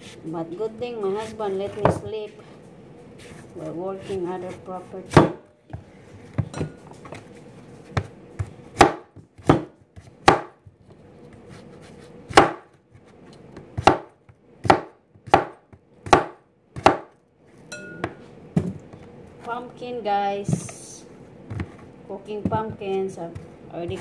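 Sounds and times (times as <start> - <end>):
knife chopping on cutting board: 5.1 - 5.8, 7.9 - 10.6, 11.5 - 12.8, 13.6 - 17.2.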